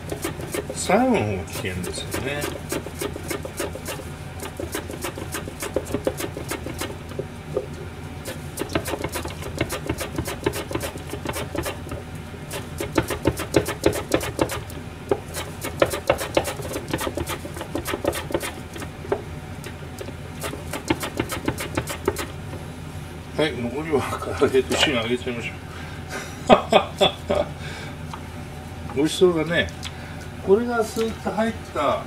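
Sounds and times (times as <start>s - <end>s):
steady low hum: 0.0s - 32.0s
carrot slicing on mandoline: 1.5s - 7.0s, 8.2s - 11.9s, 15.2s - 18.6s.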